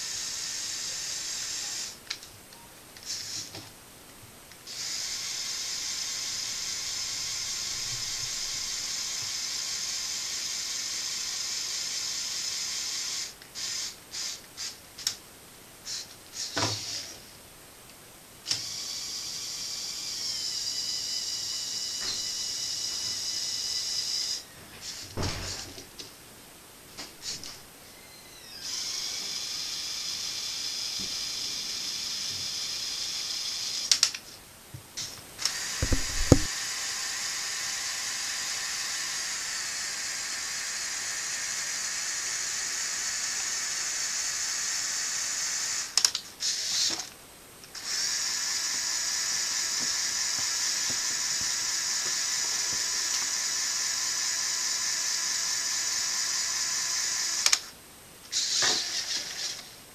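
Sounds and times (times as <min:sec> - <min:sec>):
electric motor whine with gear rattle: 0:04.7 - 0:14.0, 0:18.4 - 0:25.8, 0:27.2 - 0:34.1, 0:35.4 - 0:47.0, 0:47.7 - 0:57.7, 0:58.3 - 0:59.7
clicks: 0:35.8 - 0:36.5
plastic knocks: 0:35.8 - 0:36.5.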